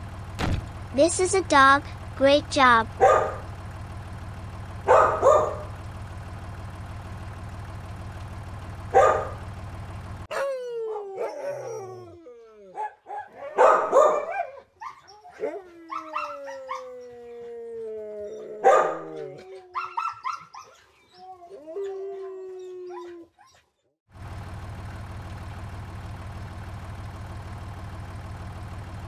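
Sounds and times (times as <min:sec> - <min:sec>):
tractor engine hum: 0:00.0 - 0:21.0, 0:24.1 - 0:29.0
dog barking: 0:03.0 - 0:03.4, 0:04.8 - 0:05.7, 0:08.9 - 0:09.4, 0:10.3 - 0:10.6, 0:12.7 - 0:16.8, 0:18.6 - 0:19.1, 0:19.8 - 0:20.6
dog whining and howling: 0:10.3 - 0:23.8.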